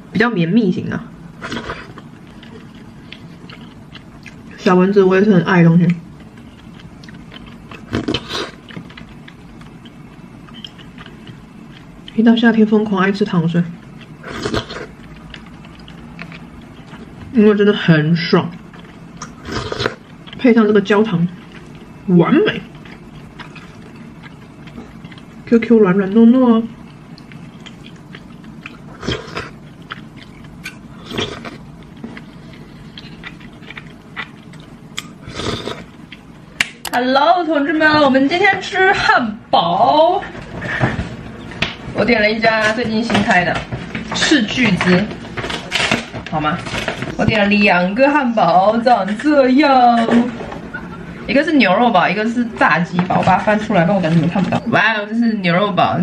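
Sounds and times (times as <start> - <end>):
chewing and slurping: 1.4 - 4.8, 5.8 - 12.2, 13.7 - 17.3, 18.2 - 36.3.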